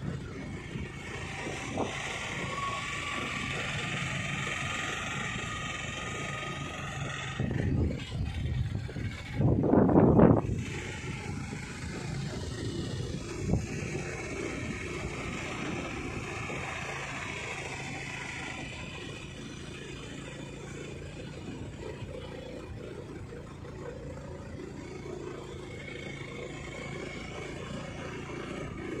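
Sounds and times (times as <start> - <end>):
vehicle engine running: 0.0 - 29.0
tyre and wind noise: 7.4 - 16.8.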